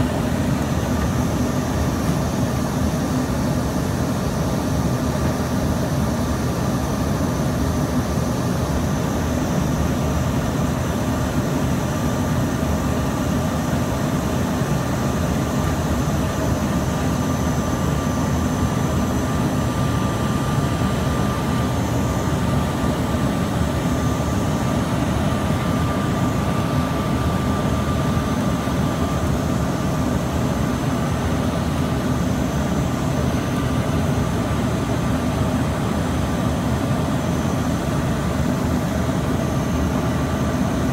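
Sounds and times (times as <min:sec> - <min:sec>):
jet engine drone and airflow: 0:00.0 - 0:40.9
steady high whine: 0:00.0 - 0:40.9.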